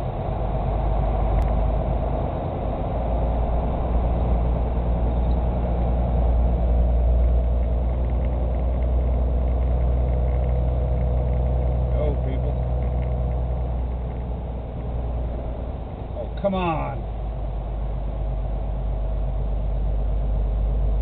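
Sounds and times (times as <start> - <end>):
vehicle engine and tyre drone: 0.0 - 21.0.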